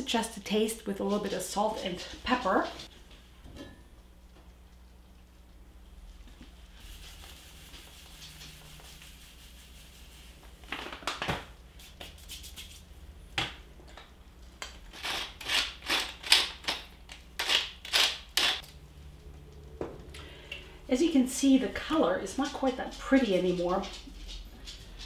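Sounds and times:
pepper mill grinding: 14.6 - 18.7.

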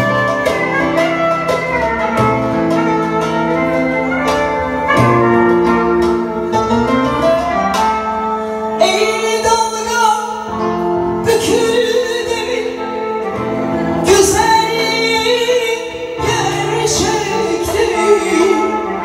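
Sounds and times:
live instrumental accompaniment: 0.0 - 19.0
woman singing into a microphone: 8.8 - 19.0.

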